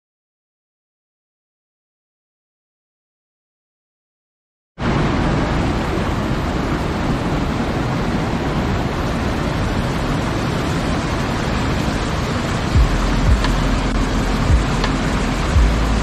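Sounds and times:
stream cascading over rocks: 4.8 - 16.0.

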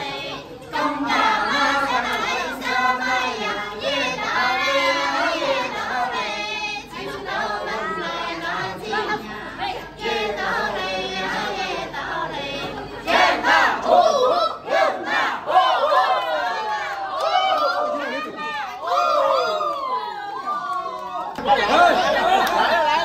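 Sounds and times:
women singing together: 0.0 - 15.8.

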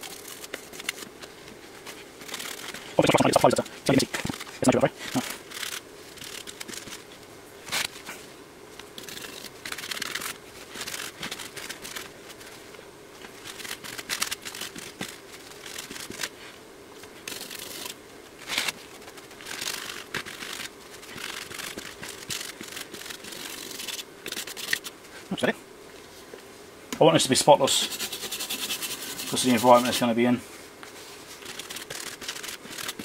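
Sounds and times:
scratchy rubbing strokes: 0.0 - 7.1, 9.0 - 12.7, 13.3 - 16.6, 17.2 - 25.0, 27.6 - 30.2, 30.9 - 33.0.

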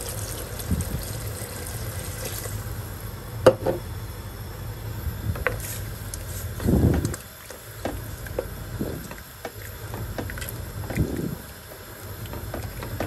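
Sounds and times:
steady low hum: 0.0 - 13.0
liquid sloshing in a pot: 5.5 - 13.0.

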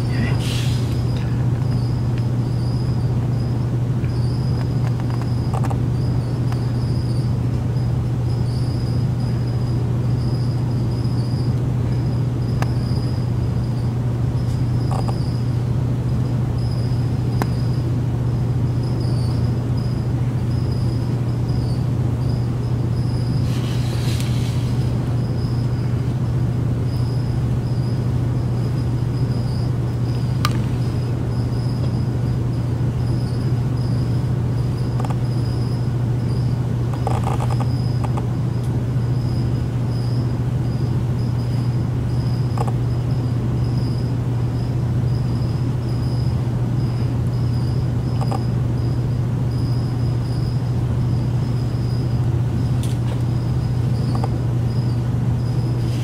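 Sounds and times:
faint pulsing high whine: 0.0 - 56.0
low machine hum: 0.0 - 56.0
faint ticks: 48.2 - 48.4.

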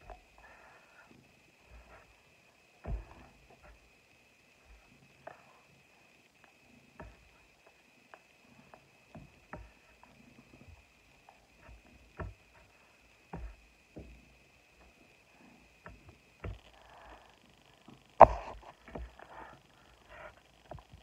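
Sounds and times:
soft breathy hiss: 0.0 - 10.6
faint high whine: 0.0 - 21.0.

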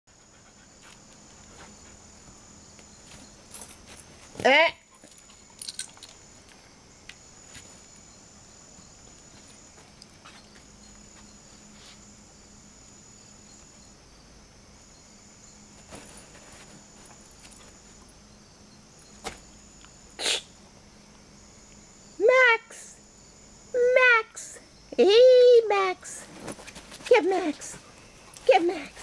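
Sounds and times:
high insect drone: 0.1 - 29.0.

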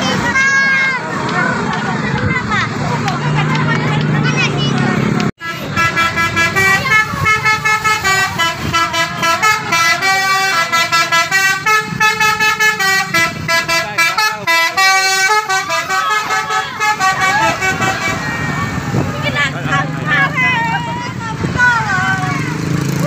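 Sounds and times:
bus horn playing tuneful notes: 5.4 - 18.8.

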